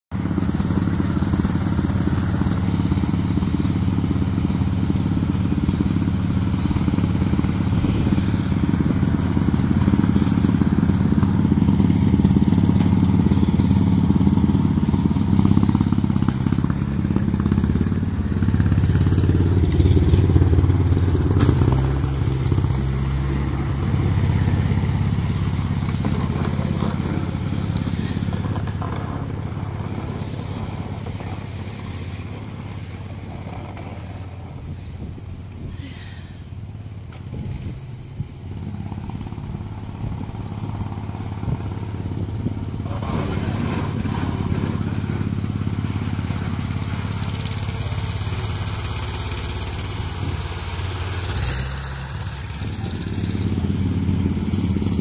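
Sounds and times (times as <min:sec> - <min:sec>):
tractor engine running: 0:00.1 - 0:55.0.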